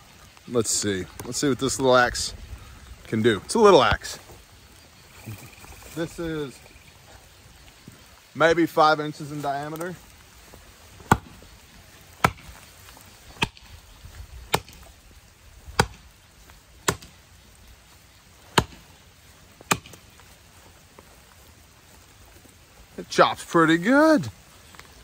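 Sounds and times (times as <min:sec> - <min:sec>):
axe chopping into tree trunk: 0:11.0 - 0:11.4, 0:12.2 - 0:12.6, 0:13.4 - 0:13.7, 0:14.5 - 0:14.9, 0:15.7 - 0:16.0, 0:16.8 - 0:17.2, 0:18.5 - 0:18.9, 0:19.6 - 0:20.0.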